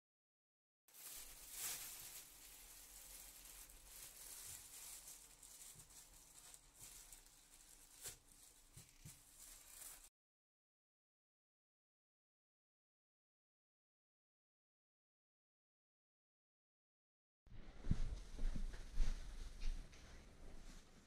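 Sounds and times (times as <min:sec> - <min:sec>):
plastic bag crinkling and rustling: 0:00.9 - 0:10.1.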